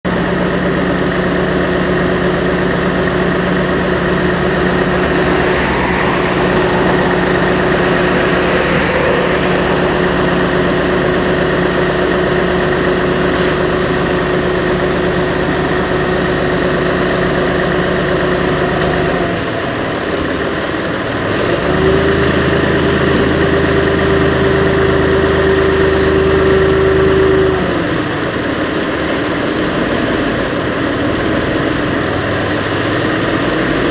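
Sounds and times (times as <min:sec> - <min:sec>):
diesel engine idling: 0:00.1 - 0:33.5
steady tone: 0:02.0 - 0:13.3.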